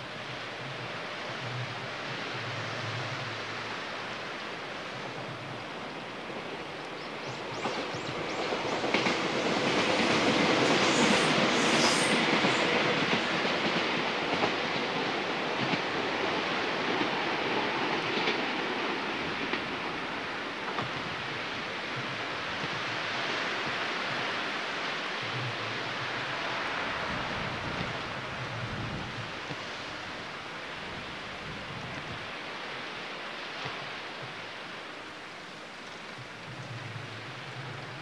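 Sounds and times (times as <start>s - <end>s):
train passing on rails: 0.0s - 38.0s
wind: 0.0s - 38.0s
train wheel squeals: 7.2s - 13.8s.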